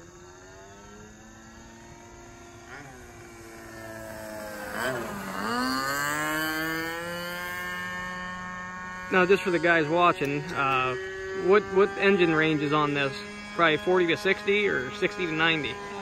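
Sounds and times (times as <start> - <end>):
model airplane engine and propeller: 0.0 - 16.0.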